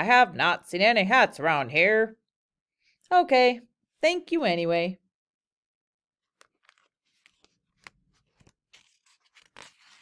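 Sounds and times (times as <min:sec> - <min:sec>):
paper page rustling: 0:06.2 - 0:10.0.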